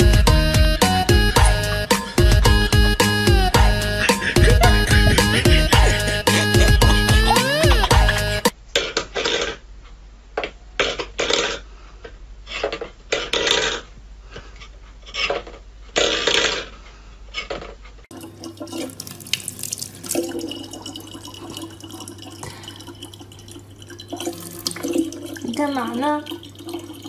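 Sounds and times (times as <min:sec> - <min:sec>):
low hum: 0:01.0 - 0:08.5
tap running water: 0:18.1 - 0:27.0.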